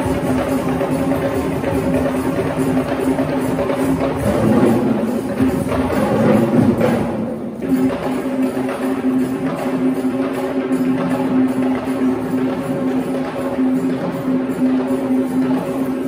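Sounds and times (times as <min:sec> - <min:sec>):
fast dense drumming: 0:00.0 - 0:16.0.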